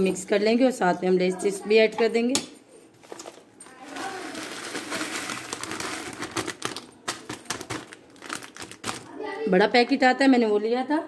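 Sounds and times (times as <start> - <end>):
foil packet crinkling: 3.0 - 9.2
chips falling into flour: 3.1 - 9.1.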